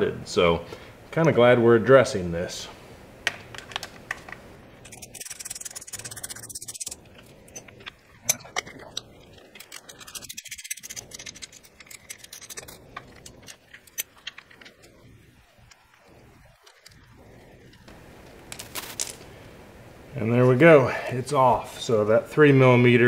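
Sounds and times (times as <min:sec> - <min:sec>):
hand ratchet clicking: 0:04.8 - 0:14.5.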